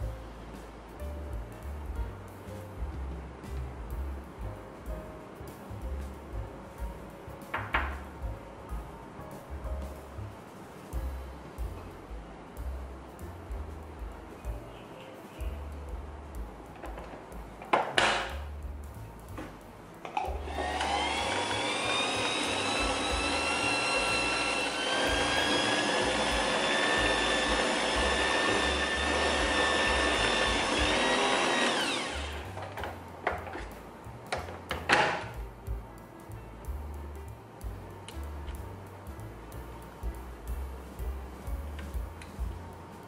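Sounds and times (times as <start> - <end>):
stand mixer motor whining: 20.4 - 32.4.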